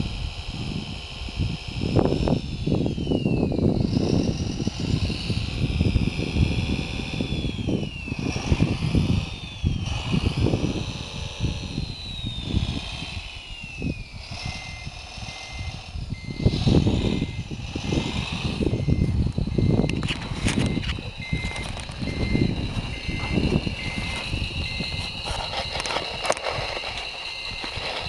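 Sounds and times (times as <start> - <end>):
electric motors whining: 0.0 - 28.0
wind noise on microphone: 0.0 - 28.0
short beep: 14.5 - 17.5, 18.6 - 28.0
wheels on gravel: 16.4 - 28.0.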